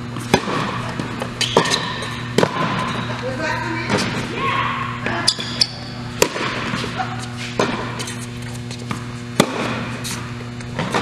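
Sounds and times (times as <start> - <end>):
electrical hum: 0.0 - 11.0
tennis ball bouncing: 0.1 - 3.2, 5.0 - 7.0, 7.6 - 8.0, 8.7 - 11.0
tennis ball hit by racket: 0.2 - 2.9, 6.2 - 6.9, 8.9 - 9.9.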